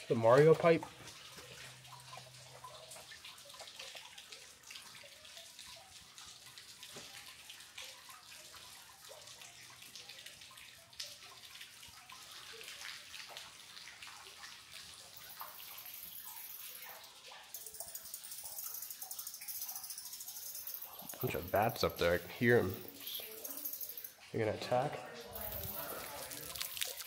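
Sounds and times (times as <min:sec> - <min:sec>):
water trickling and dripping: 0:00.0 - 0:27.0.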